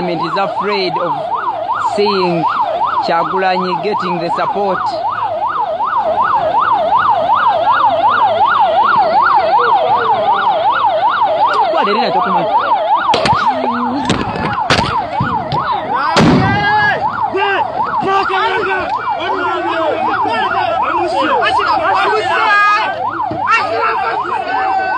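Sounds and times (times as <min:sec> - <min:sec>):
siren in fast yelp mode: 0:00.0 - 0:24.9.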